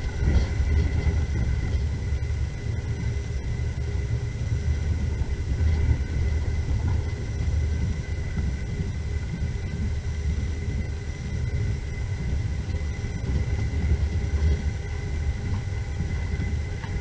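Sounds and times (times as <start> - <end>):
train rumbling on track: 0.0 - 17.0.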